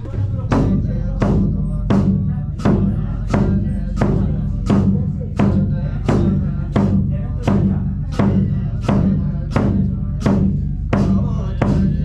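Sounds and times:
monks chanting low drone: 0.0 - 12.0.

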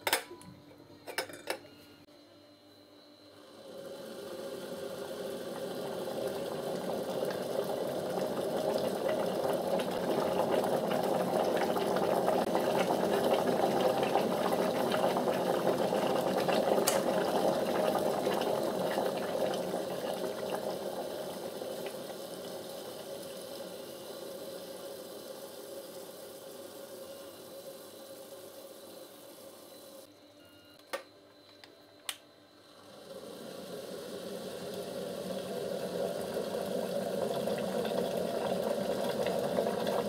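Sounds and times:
water boiling in electric kettle: 3.3 - 30.1, 32.1 - 40.0
kettle switch click: 30.9 - 32.2.

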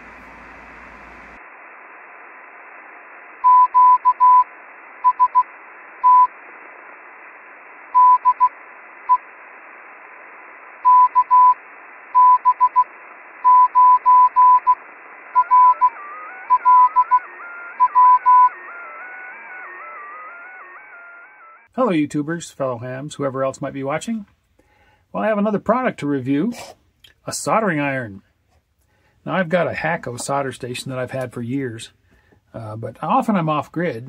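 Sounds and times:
radio receiver hiss: 0.0 - 20.6
morse code beeps: 3.4 - 6.3, 8.0 - 8.5, 10.8 - 11.6, 12.2 - 14.8, 15.4 - 18.6.

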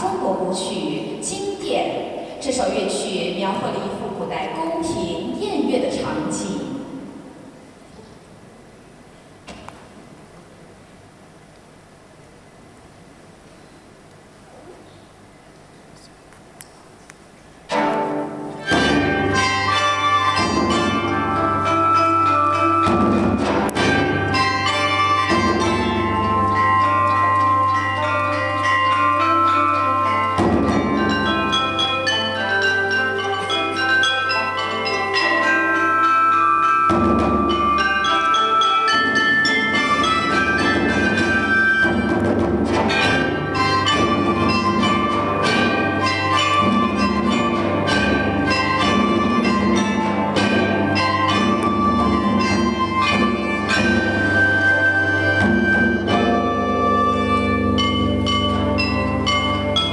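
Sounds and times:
percussion: 17.6 - 59.9
zither: 17.6 - 59.9
bronze chime bells melody: 19.0 - 42.2, 42.9 - 59.9
low sustained tones: 49.8 - 59.9.

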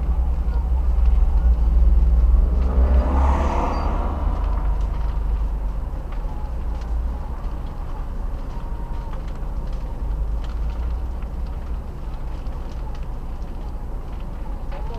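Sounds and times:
steady low rumble: 0.0 - 14.9
car driving past: 1.7 - 6.8.

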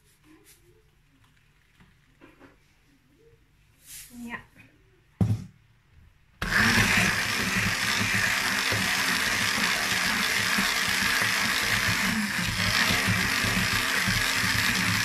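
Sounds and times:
immersion blender running: 6.4 - 15.0.

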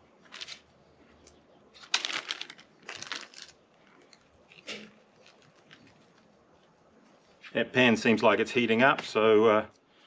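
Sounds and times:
plastic bag crinkling: 0.2 - 0.7, 1.7 - 6.4.

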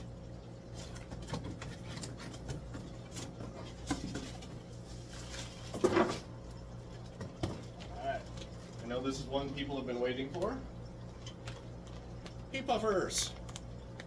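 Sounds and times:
aquarium pumps humming: 0.0 - 14.0.

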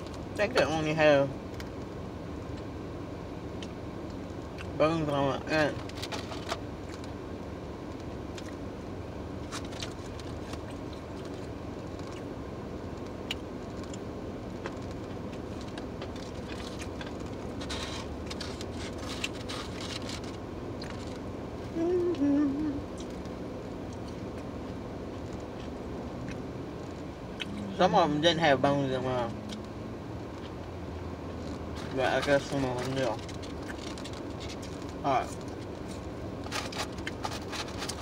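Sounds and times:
car interior hum: 0.0 - 38.0
person chewing: 13.0 - 21.2, 25.1 - 27.8, 33.2 - 38.0
person humming: 21.7 - 22.9
paper rustling: 35.8 - 38.0.

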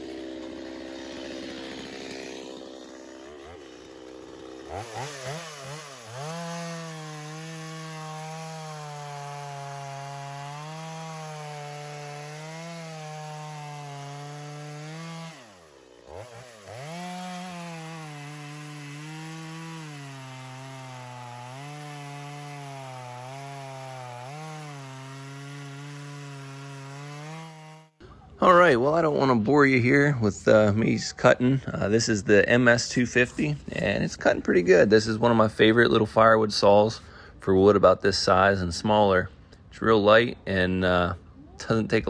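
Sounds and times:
chainsaw cutting wood: 0.0 - 28.1.

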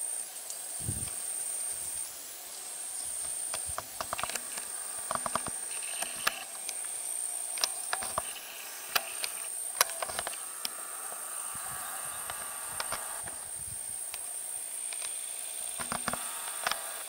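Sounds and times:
high-pitched insect drone: 0.0 - 17.0
sharp clicks and ticks: 3.2 - 10.8, 12.2 - 13.5, 14.9 - 15.2, 15.8 - 17.0.

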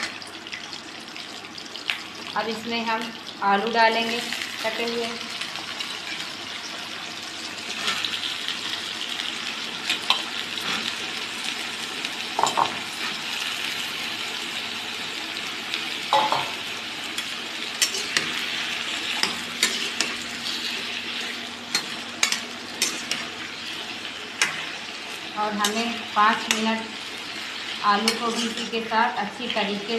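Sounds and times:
vegetables sizzling in hot oil: 0.0 - 29.9
metal spatula scraping pan: 17.8 - 23.3, 28.0 - 28.8.

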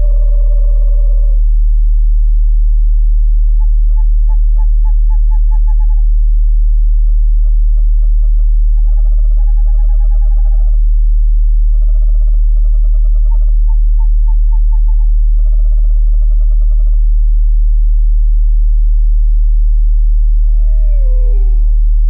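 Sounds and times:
owl hooting: 0.0 - 1.5, 3.4 - 6.2, 7.0 - 11.0, 11.6 - 17.2, 20.4 - 21.9
deep low tone: 0.0 - 22.0.

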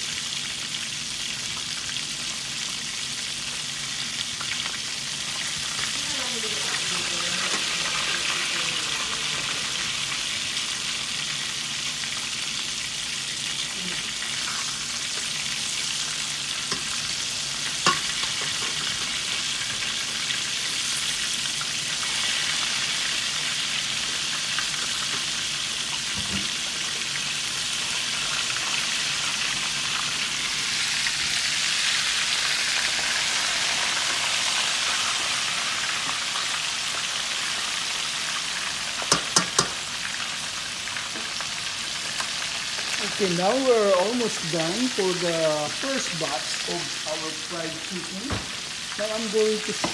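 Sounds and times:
chicken sizzling in oil: 0.0 - 49.9
metal tongs clicking on pan: 17.8 - 18.7, 39.1 - 39.8.

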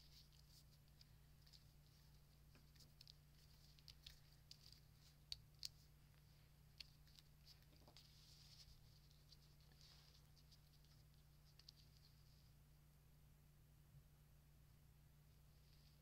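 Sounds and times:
paper rustling and ticking: 0.0 - 12.2
low steady hum: 0.0 - 16.0.

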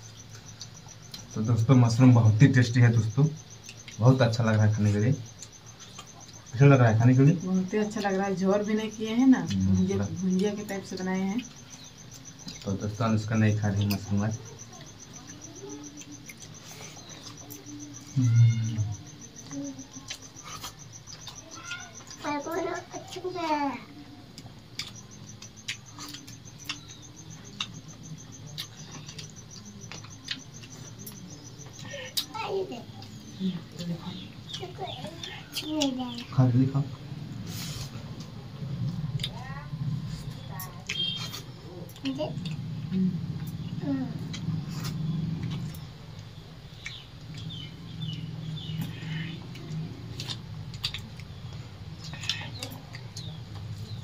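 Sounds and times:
cricket chirping: 0.0 - 54.0
low steady hum: 0.0 - 54.0
light clicks of eating from plates: 24.3 - 32.4, 44.2 - 54.0.

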